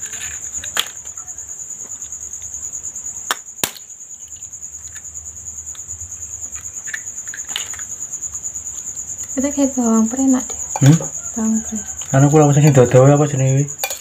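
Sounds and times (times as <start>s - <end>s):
crickets chirping: 0.0s - 14.0s
egg cracked on a spoon: 3.3s - 3.9s.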